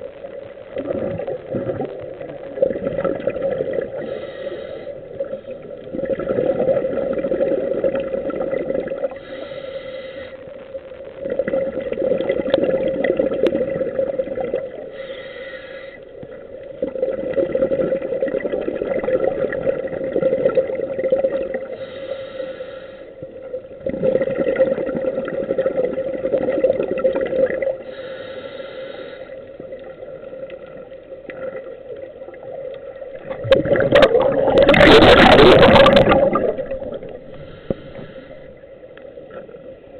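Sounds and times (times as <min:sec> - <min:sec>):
exhaled bubbles gurgling: 0:00.0 - 0:09.6, 0:11.0 - 0:15.1, 0:16.0 - 0:22.0, 0:23.2 - 0:28.1, 0:29.2 - 0:39.9
regulator inhalation hiss: 0:04.0 - 0:05.2, 0:09.1 - 0:10.5, 0:14.9 - 0:16.0, 0:21.7 - 0:23.2, 0:27.8 - 0:29.6, 0:37.3 - 0:38.7.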